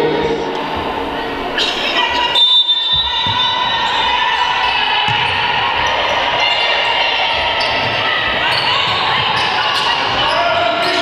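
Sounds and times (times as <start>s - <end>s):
players' voices: 0.0s - 11.0s
basketball bouncing on wooden court: 5.0s - 6.1s, 6.9s - 11.0s.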